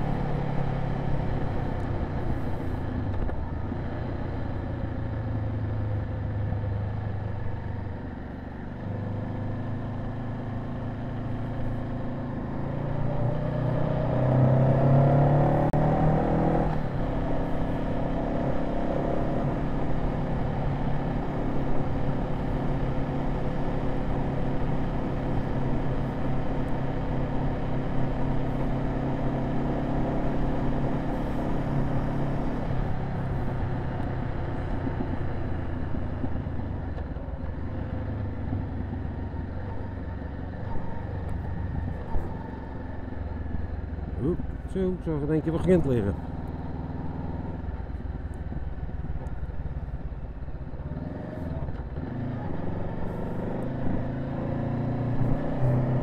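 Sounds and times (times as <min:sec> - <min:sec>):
motorcycle engine revving: 0:50.7 - 0:56.0.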